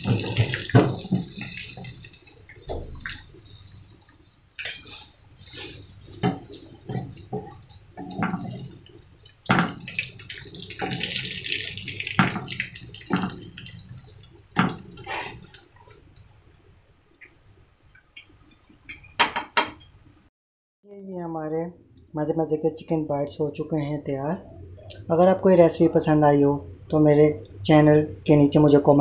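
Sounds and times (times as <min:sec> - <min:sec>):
oil dripping: 0:00.0 - 0:16.3.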